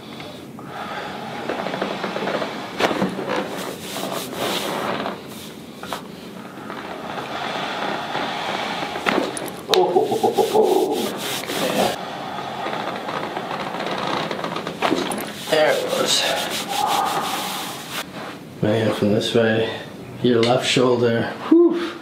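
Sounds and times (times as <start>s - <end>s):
hands rubbing fabric: 1.3s - 12.0s, 14.7s - 18.4s.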